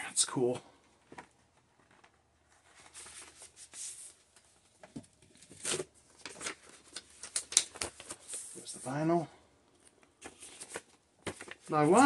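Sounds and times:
paper and cardboard rustling: 0:10.2 - 0:12.0.

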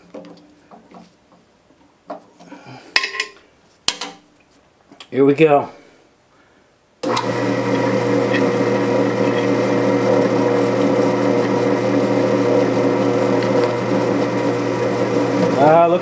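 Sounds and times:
drill press motor running: 0:07.0 - 0:16.0
drill bit cutting steel plate: 0:07.1 - 0:15.8.

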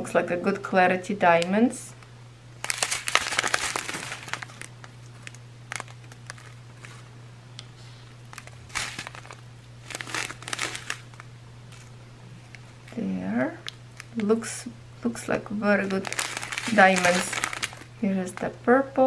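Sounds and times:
plastic bags crinkling: 0:02.6 - 0:07.0, 0:08.2 - 0:14.4, 0:15.7 - 0:18.6.

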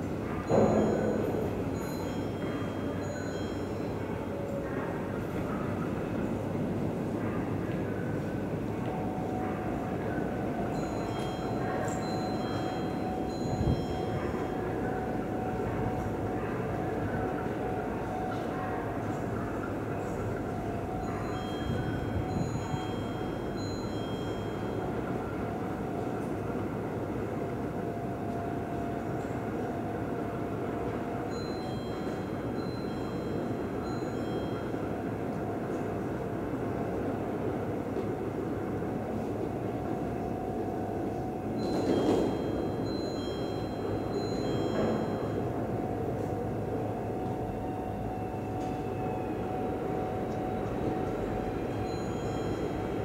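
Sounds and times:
faint steady whine: 0:00.0 - 0:53.0
maintenance train rumbling: 0:00.0 - 0:53.0.

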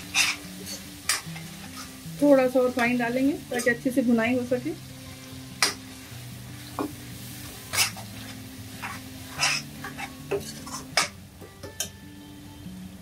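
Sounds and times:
ladle scraping a metal pan: 0:08.8 - 0:11.1.

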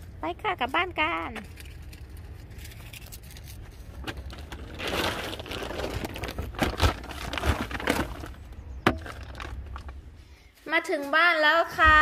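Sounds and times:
shopping bags rustling: 0:02.9 - 0:09.9.

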